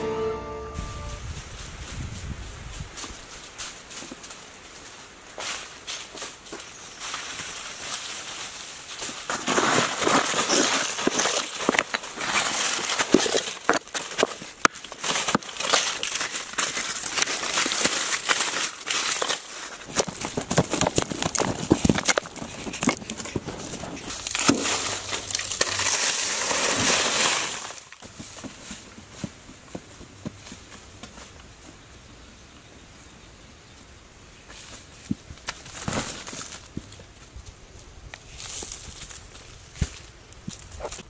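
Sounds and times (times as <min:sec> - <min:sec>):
dry leaves crunching: 0:01.1 - 0:31.8, 0:34.5 - 0:41.0
tool scraping stony soil: 0:09.2 - 0:29.4.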